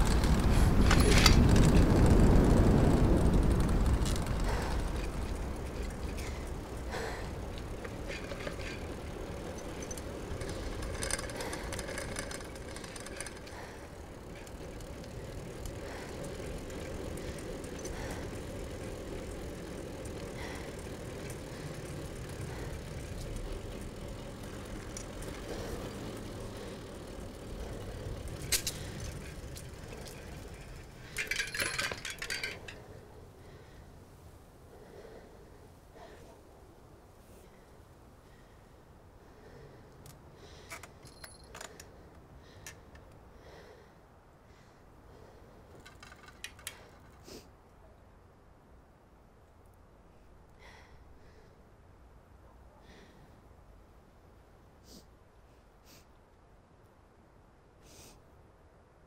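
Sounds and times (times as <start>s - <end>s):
bike clattering: 0.0s - 33.1s, 45.7s - 47.2s
bike clicks and clinks: 0.0s - 33.8s, 39.4s - 43.8s, 45.1s - 47.4s
low hum: 0.0s - 37.7s
bicycle tyre noise on road: 0.0s - 59.0s.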